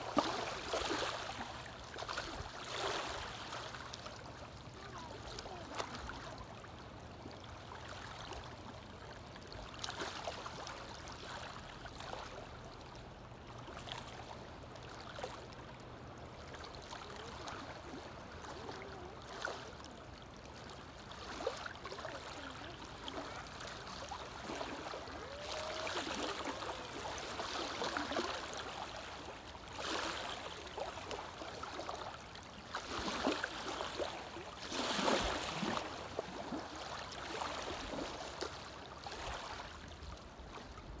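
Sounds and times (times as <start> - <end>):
waves lapping on gravel beach: 21.1 - 39.8.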